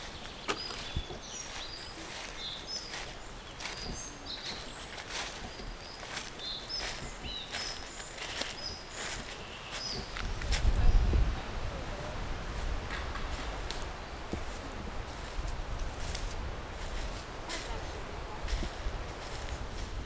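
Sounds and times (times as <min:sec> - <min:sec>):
footsteps on dry leaves: 0:00.0 - 0:11.3, 0:12.2 - 0:20.0
birds chirping: 0:00.0 - 0:11.8.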